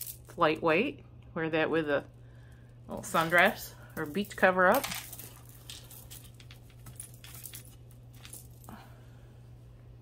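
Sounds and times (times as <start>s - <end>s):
jewelry clinking: 0.0s - 0.4s, 2.9s - 8.8s
steady low hum: 0.0s - 10.0s.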